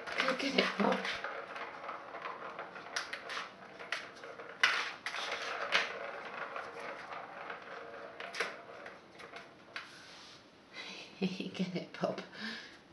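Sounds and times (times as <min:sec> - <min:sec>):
plastic cat toy clattering: 0:00.0 - 0:09.9.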